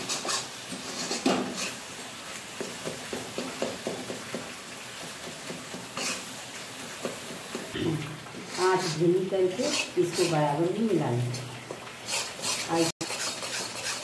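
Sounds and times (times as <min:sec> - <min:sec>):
metal spatula scraping iron pan: 0:00.0 - 0:01.8, 0:05.9 - 0:06.3, 0:08.4 - 0:10.4, 0:12.1 - 0:14.0.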